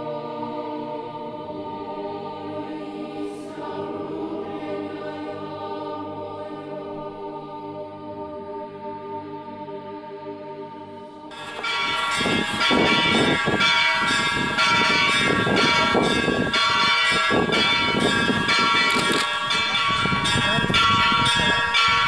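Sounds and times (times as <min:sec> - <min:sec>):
church bells ringing: 0:11.3 - 0:22.0
people's voices: 0:18.9 - 0:22.0.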